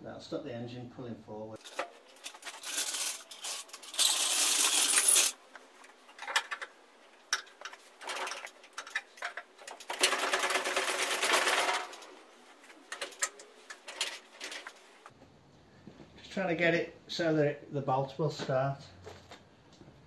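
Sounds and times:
metal tools clinking: 1.6s - 15.1s.

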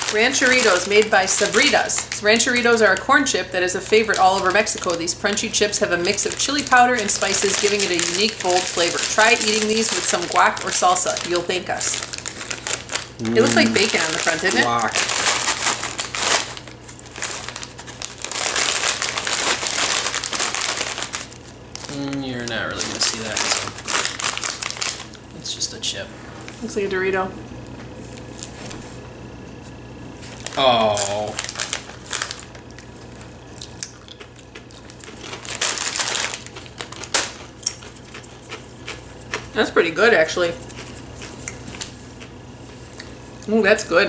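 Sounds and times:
chip bag crinkling: 0.0s - 25.2s, 30.2s - 39.6s.

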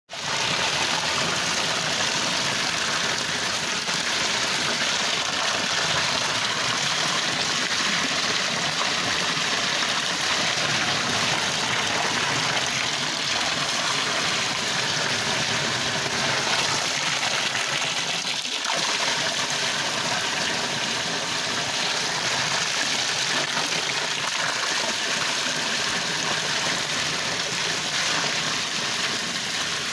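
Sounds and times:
water pouring over waterfall: 0.1s - 29.9s.

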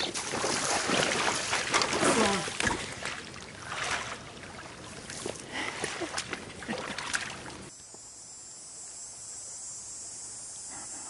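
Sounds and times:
boots splashing through water: 0.0s - 7.7s.

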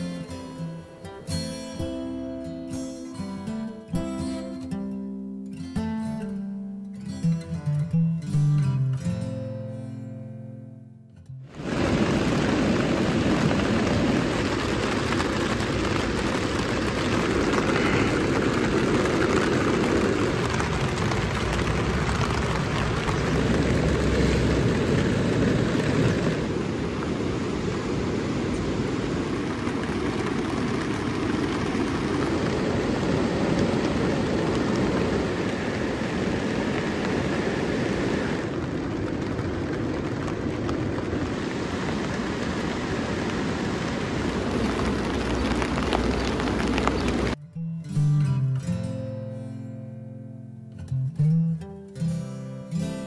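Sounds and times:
loud rushing noise: 11.5s - 47.4s.

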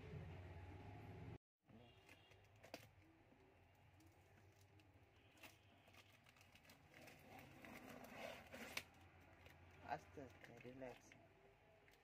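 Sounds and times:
tape rustling: 3.9s - 9.8s.

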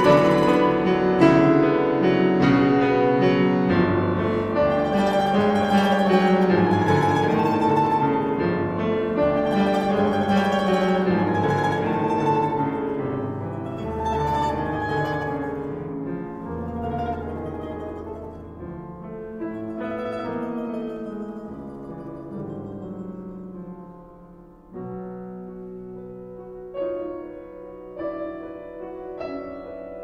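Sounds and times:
plucked domra notes: 0.0s - 2.6s, 4.2s - 24.0s
piano chords: 0.0s - 30.0s.

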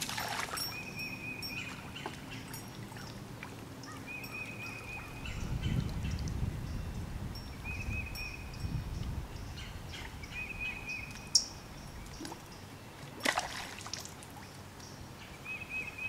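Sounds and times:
fish splashing into river: 0.0s - 0.6s, 13.2s - 14.2s.

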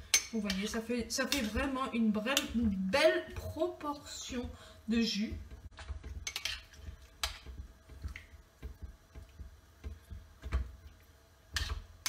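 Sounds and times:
spoon stirring food in sauce: 5.3s - 12.0s.

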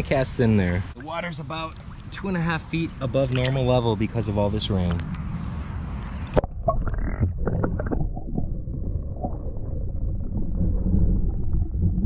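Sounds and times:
muffled underwater water noise: 0.8s - 12.0s
sharp splashes and knocks: 1.6s - 2.2s, 2.8s - 3.8s
low underwater rumble and gurgle: 4.8s - 12.0s.

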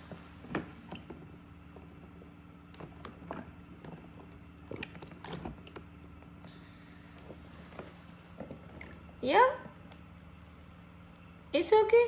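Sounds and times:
small knocks in water: 0.0s - 6.2s.

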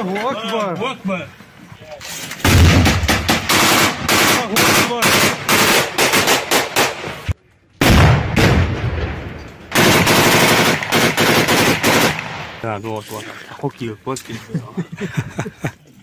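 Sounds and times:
automatic gunfire: 2.4s - 7.0s, 9.7s - 12.6s.

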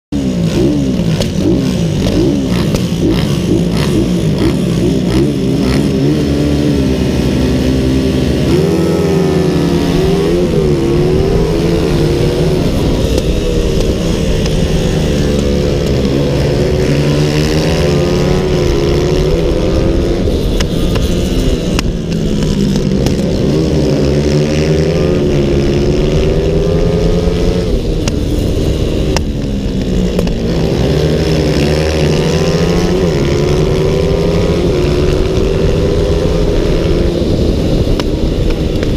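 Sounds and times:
motorcycle engine at full throttle: 0.1s - 38.9s
wind rush: 8.1s - 38.9s.

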